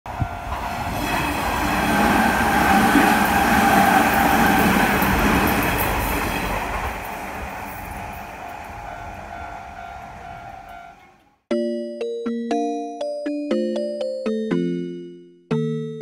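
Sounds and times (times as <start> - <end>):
crossing warning bell ringing: 0.1 - 1.2, 7.0 - 11.3
electric train passing: 0.1 - 11.4.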